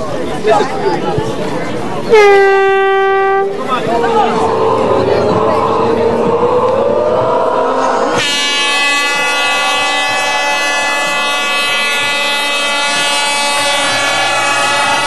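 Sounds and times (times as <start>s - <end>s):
air horn blast: 2.1s - 3.7s, 7.9s - 15.0s.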